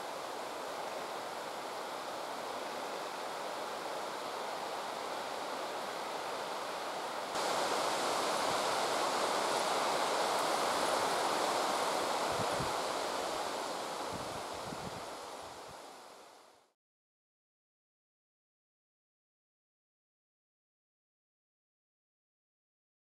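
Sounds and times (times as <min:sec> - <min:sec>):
rushing outdoor background noise: 0:00.0 - 0:16.6.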